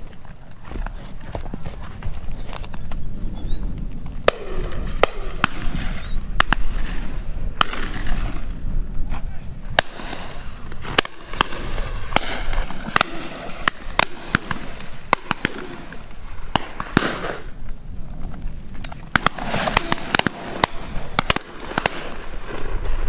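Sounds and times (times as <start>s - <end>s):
wind rumbling on microphone: 0.0s - 23.0s
shotgun shots: 4.2s - 8.5s, 9.8s - 17.5s, 19.1s - 23.0s.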